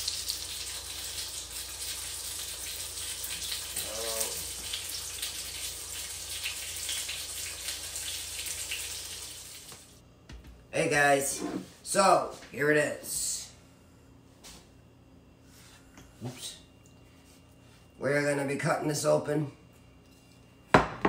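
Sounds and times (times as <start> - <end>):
food sizzling in a pan: 0.0 - 9.9.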